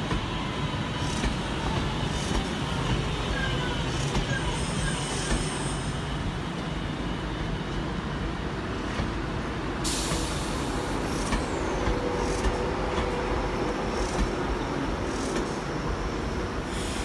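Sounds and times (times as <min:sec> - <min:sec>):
electric train rumbling: 0:00.0 - 0:17.0
air hiss: 0:09.8 - 0:12.6, 0:16.6 - 0:17.0.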